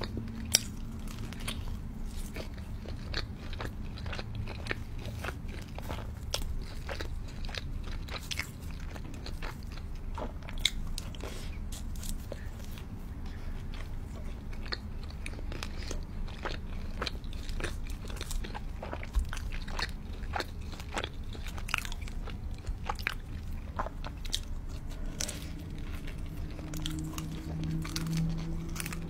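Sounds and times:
crunching and chewing pizza crust: 0.0 - 29.0
low steady hum: 0.0 - 29.0.

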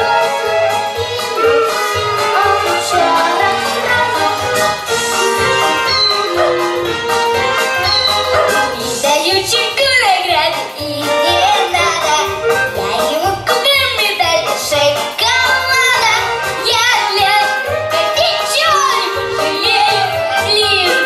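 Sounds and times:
pop backing track: 0.0 - 21.0
girl singing into a microphone: 2.4 - 4.6, 8.8 - 21.0.

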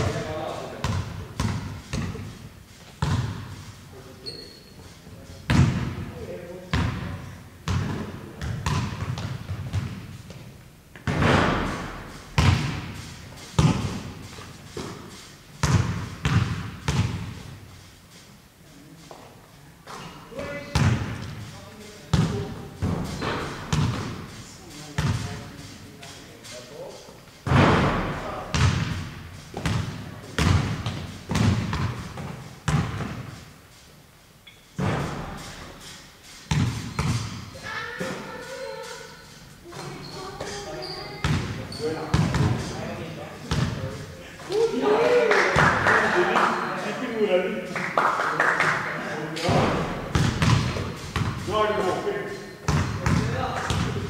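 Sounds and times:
heavy thuds: 11.0 - 17.4, 27.4 - 33.4.

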